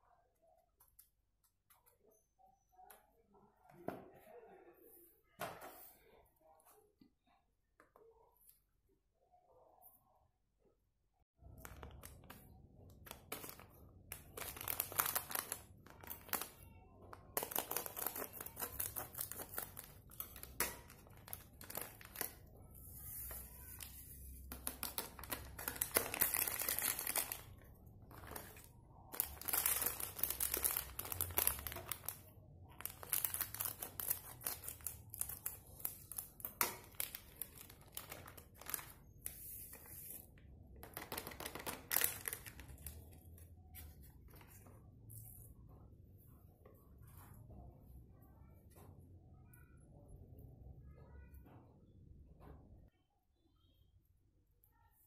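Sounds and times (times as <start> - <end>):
foil sachets crinkling: 11.5 - 16.6, 17.2 - 40.2, 40.8 - 43.1.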